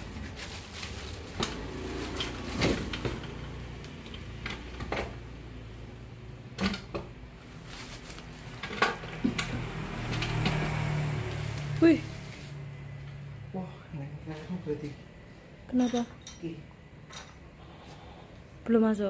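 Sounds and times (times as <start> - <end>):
knocks and creaks of handling: 0.0 - 5.5, 6.4 - 10.9.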